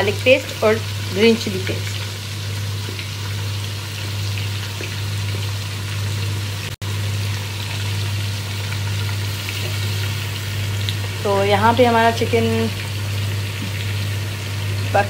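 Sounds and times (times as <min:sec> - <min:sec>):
chicken frying in hot oil: 0:00.0 - 0:15.0.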